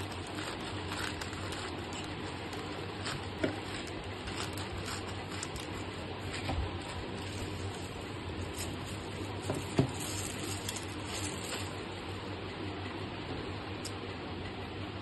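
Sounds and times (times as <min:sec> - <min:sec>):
scissors snipping plastic: 0:00.0 - 0:07.4
plastic crinkling: 0:00.0 - 0:12.0.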